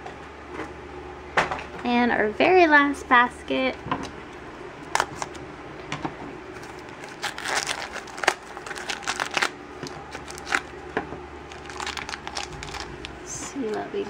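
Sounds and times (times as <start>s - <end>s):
plastic bag crinkling: 6.6s - 10.8s, 11.5s - 13.8s.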